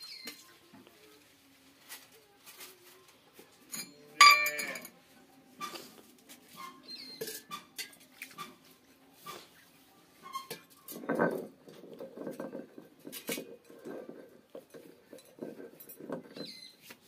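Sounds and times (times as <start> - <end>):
metal kitchen utensils clinking: 3.6 - 5.0, 6.5 - 9.6, 10.2 - 17.0.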